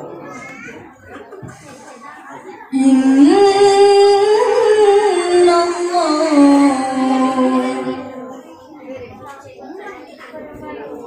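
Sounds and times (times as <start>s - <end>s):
woman reciting melodically: 2.7s - 8.7s.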